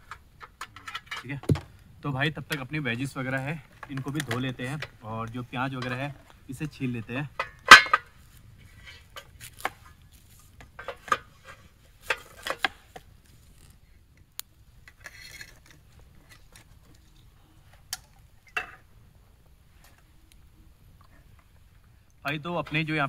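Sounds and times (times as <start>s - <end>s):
soft rustle: 8.0s - 18.4s, 19.2s - 22.1s.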